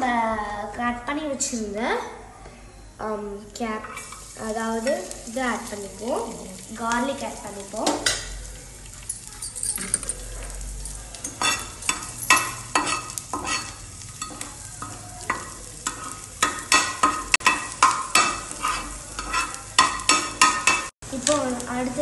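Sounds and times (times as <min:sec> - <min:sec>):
garlic frying in oil: 0:03.3 - 0:22.0
utensil scraping pan: 0:03.8 - 0:04.4, 0:11.3 - 0:20.9.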